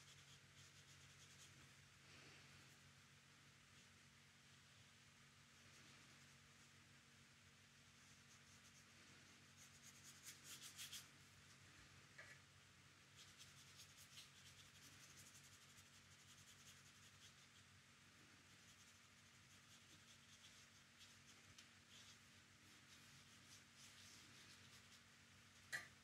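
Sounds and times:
paintbrush strokes on paper: 0.0s - 2.3s, 7.8s - 11.2s, 13.1s - 17.7s, 18.4s - 25.7s
low steady hum: 0.0s - 26.0s.

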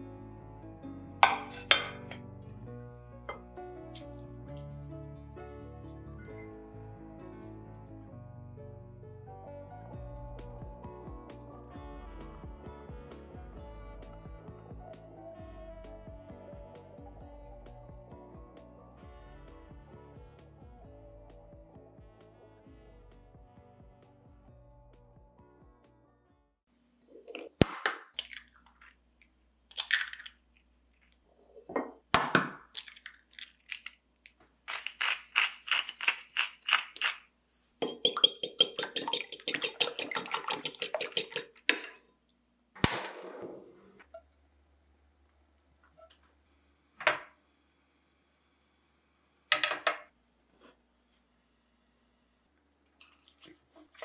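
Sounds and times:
eggs beaten in bowl clinking: 1.2s - 2.2s, 34.7s - 37.2s, 37.8s - 42.0s
eggs cracked against bowl: 3.3s - 4.7s, 27.2s - 30.5s, 32.2s - 37.2s, 37.8s - 42.0s.

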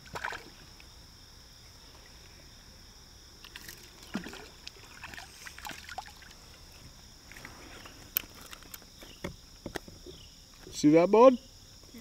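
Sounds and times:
fish splashing in water: 0.0s - 0.6s, 3.4s - 6.6s
clicks beside kayak: 6.8s - 10.7s.

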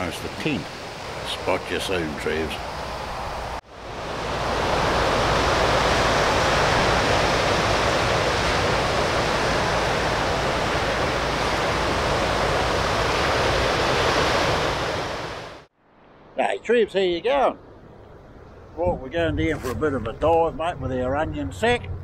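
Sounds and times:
surf breaking on beach: 0.0s - 15.7s.

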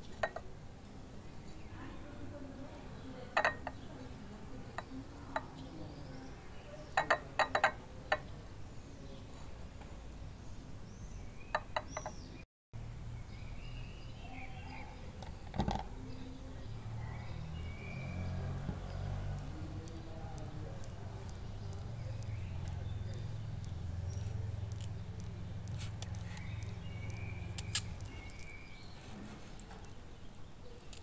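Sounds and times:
faint bird chirps: 10.4s - 12.4s, 16.1s - 31.0s
fingers tapping a seedling pot: 18.4s - 28.8s.

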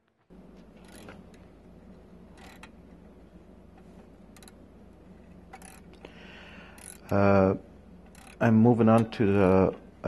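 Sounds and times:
steady low hum: 0.0s - 10.0s
socket wrench clicks and scrapes: 0.8s - 1.4s, 2.4s - 2.7s, 8.1s - 8.4s.

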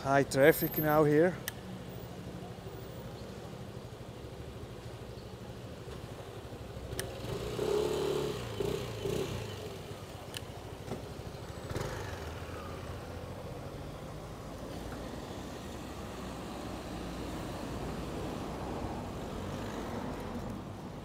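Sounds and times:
passing cars: 0.0s - 21.0s
motor scooter engine revving: 6.9s - 9.8s.

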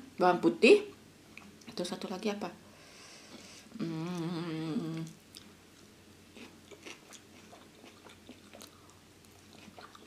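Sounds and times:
woman humming: 3.7s - 5.2s
chewing and mouth clicks: 5.0s - 10.0s.

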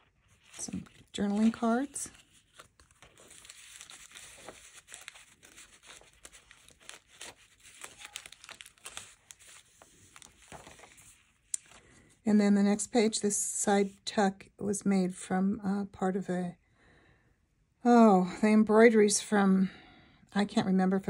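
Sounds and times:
paper rustling and scraping: 0.0s - 12.0s.

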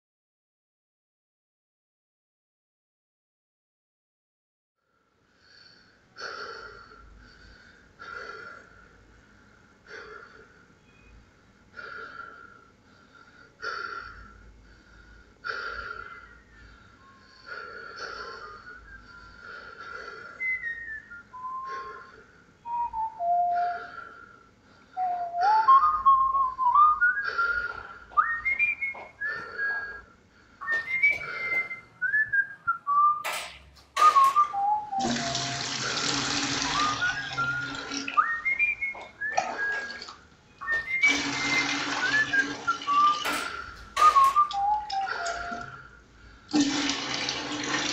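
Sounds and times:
person whistling: 18.1s - 24.4s, 25.0s - 35.6s, 36.4s - 46.0s.

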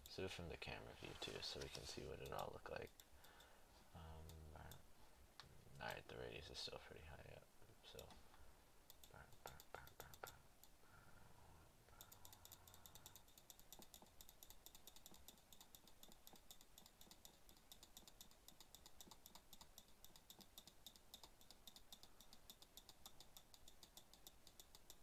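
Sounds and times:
rapid computer control clicks: 1.6s - 3.5s, 12.0s - 25.0s.

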